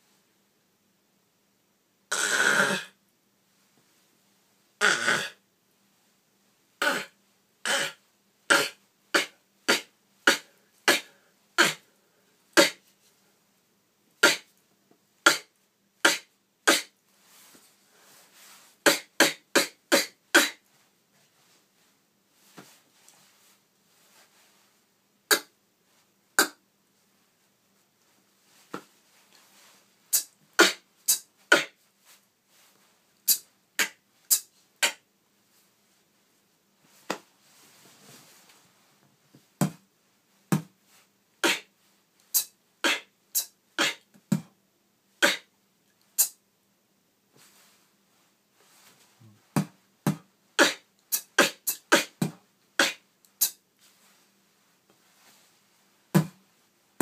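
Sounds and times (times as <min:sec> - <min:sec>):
beatboxing mouth percussion: 0:02.1 - 0:03.0, 0:04.8 - 0:05.4, 0:06.8 - 0:11.9, 0:12.6 - 0:12.9, 0:14.2 - 0:14.5, 0:15.2 - 0:17.0, 0:18.8 - 0:20.6, 0:25.3 - 0:25.6, 0:26.4 - 0:26.6, 0:30.1 - 0:31.8, 0:33.3 - 0:35.1, 0:41.4 - 0:41.7, 0:42.3 - 0:44.5, 0:45.2 - 0:45.5, 0:46.1 - 0:46.4, 0:49.3 - 0:53.6.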